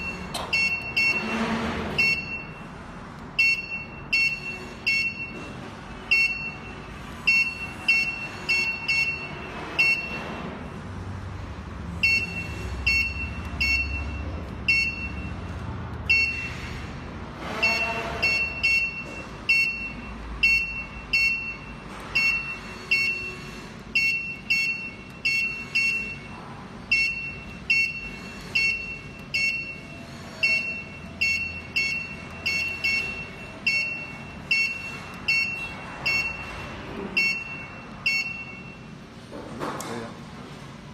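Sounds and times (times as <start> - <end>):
control panel key press beeps: 0.0 - 1.2, 3.4 - 5.4, 12.0 - 15.3, 18.3 - 23.2, 24.0 - 26.3, 30.5 - 36.4, 37.2 - 38.8.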